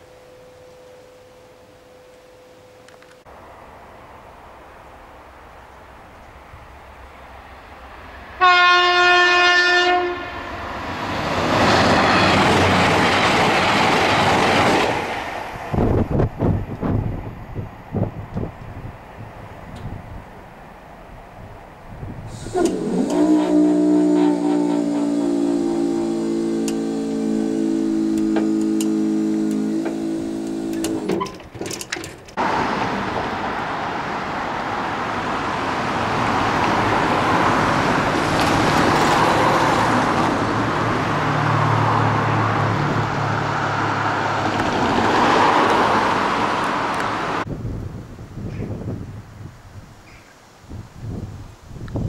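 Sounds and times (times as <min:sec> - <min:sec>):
engine hum: 0:21.4 - 0:47.6
vehicle rushing past: 0:32.4 - 0:47.5.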